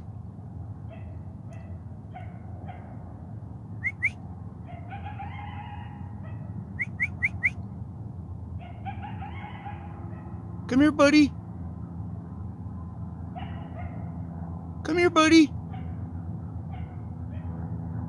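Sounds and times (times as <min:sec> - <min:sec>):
person whistling sharp rising notes: 0:03.8 - 0:04.2
distant drawn-out calls: 0:03.8 - 0:07.6, 0:08.6 - 0:10.6, 0:13.3 - 0:14.3.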